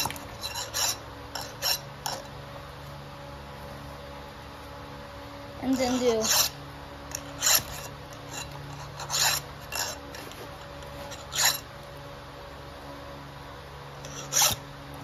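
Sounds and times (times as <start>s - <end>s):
file rasping on saw chain: 0.0s - 2.3s, 5.7s - 11.7s, 14.0s - 14.6s.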